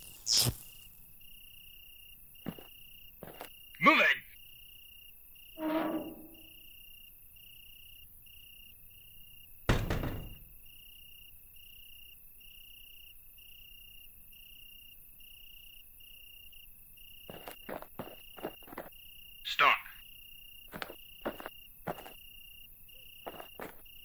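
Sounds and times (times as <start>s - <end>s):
crickets chirping: 0.0s - 24.0s
heavy thud: 9.7s - 10.4s.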